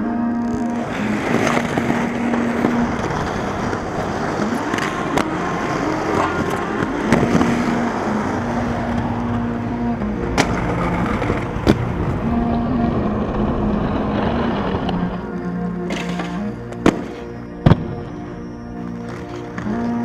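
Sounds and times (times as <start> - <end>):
skate wheels rolling on concrete: 0.2 - 20.0
skates clacking on ledges: 0.7 - 9.4, 15.9 - 17.2.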